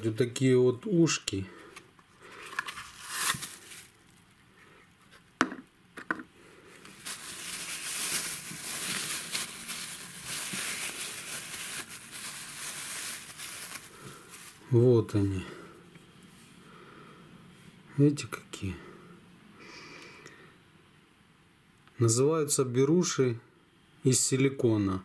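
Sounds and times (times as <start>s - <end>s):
plastic bag crinkling: 2.2s - 4.4s, 6.7s - 14.7s.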